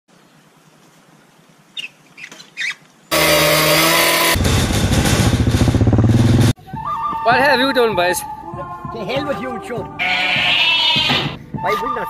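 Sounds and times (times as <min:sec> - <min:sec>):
quad bike engine: 0:03.1 - 0:06.6.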